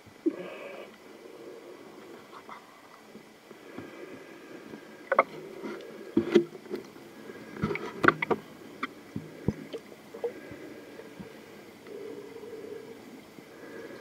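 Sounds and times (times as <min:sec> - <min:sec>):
water sloshing: 0:04.8 - 0:12.6
underwater clicks and knocks: 0:05.1 - 0:05.4, 0:06.2 - 0:07.0, 0:07.6 - 0:10.3.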